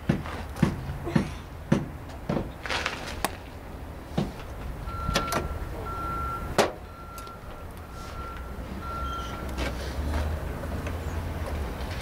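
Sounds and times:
high beeps in short dashes: 0:04.9 - 0:09.5.

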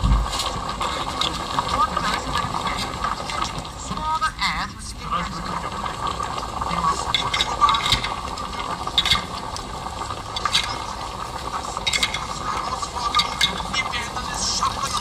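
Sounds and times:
water trickling and splashing: 0:00.0 - 0:04.5, 0:05.1 - 0:15.0
clicks and rattles: 0:06.6 - 0:15.0.

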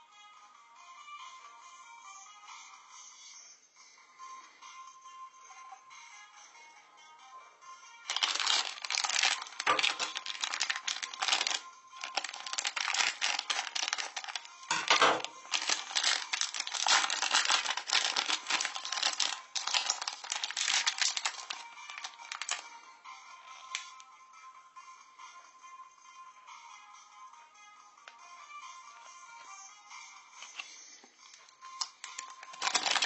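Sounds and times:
wrapper crackling: 0:08.1 - 0:22.6, 0:31.8 - 0:33.0.

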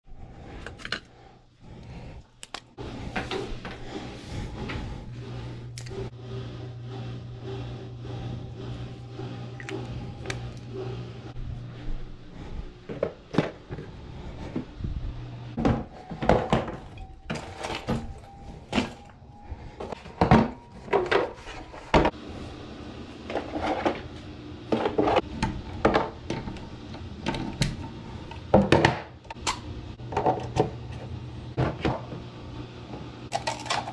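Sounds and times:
steady low hum: 0:00.1 - 0:33.9
objects being handled and set down: 0:00.5 - 0:01.1.

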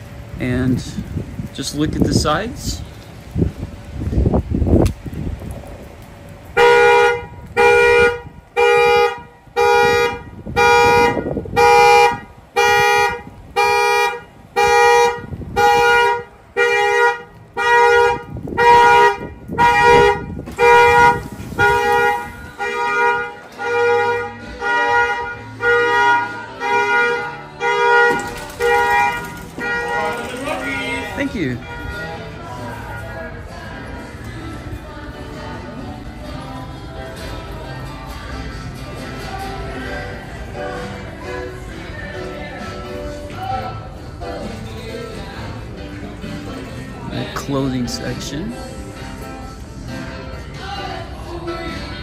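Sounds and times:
car alarm horn honking: 0:06.6 - 0:33.3.

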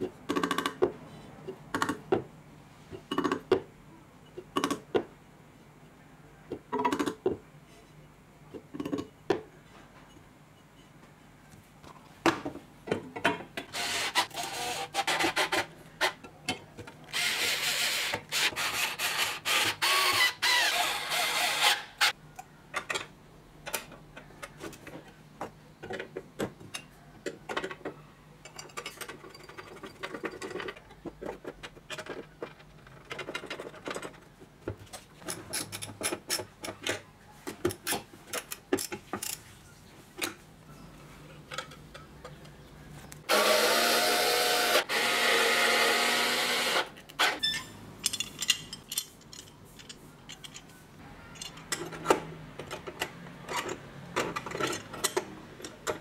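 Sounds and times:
clicks and taps of parts: 0:00.3 - 0:02.3, 0:48.0 - 0:50.7, 0:51.4 - 0:56.0.

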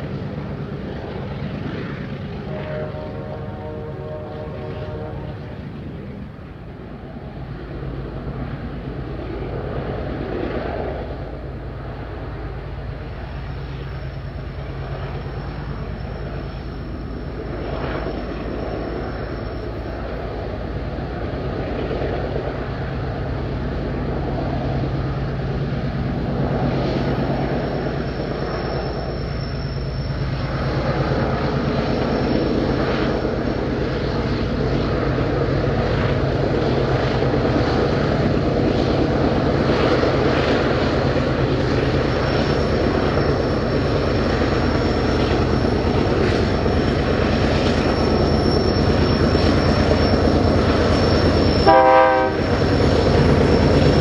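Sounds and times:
diesel locomotive engines droning: 0:00.0 - 0:54.0
faint high whine: 0:11.4 - 0:54.0.

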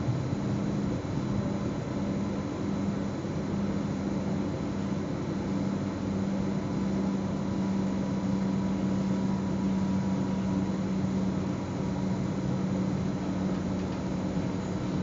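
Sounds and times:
train low hum: 0:08.6 - 0:15.0.

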